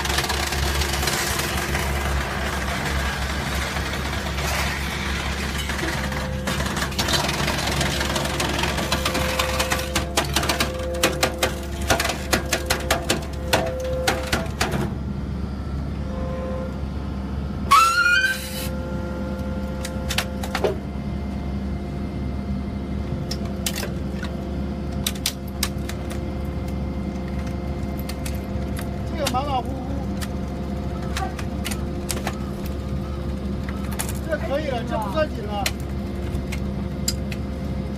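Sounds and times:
hydraulic baler humming: 0.0s - 37.9s
rising metal squeal: 17.7s - 19.1s.

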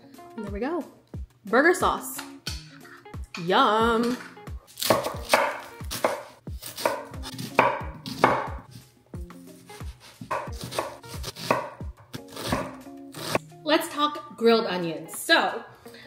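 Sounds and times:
knife chopping on wooden board: 4.8s - 8.8s, 9.8s - 13.4s.

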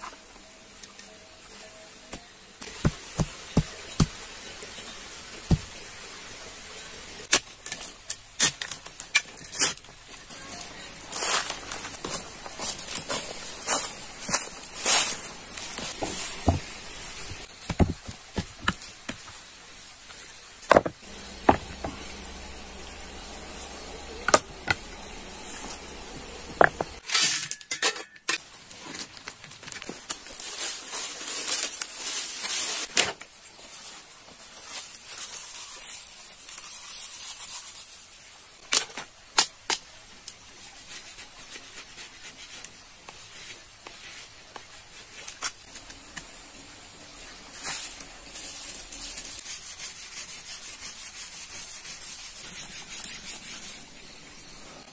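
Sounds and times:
steady high hiss: 0.0s - 27.1s
stones and bamboo knocking: 2.1s - 4.2s, 17.5s - 19.4s, 20.6s - 22.4s, 26.5s - 27.0s
dry leaves rustling: 2.6s - 27.1s, 28.4s - 54.9s.

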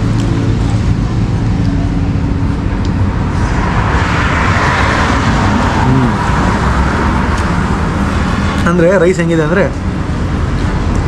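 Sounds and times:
vehicle passing: 0.0s - 10.5s
road traffic rumble: 0.0s - 11.0s.

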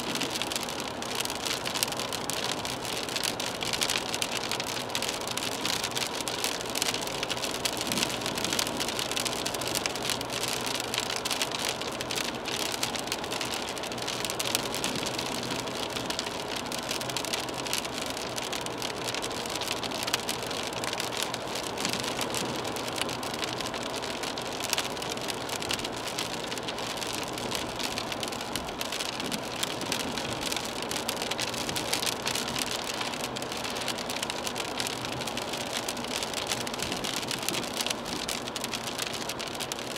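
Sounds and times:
faint tyre and engine hum: 0.0s - 39.9s
rain pattering on car: 0.0s - 39.9s.

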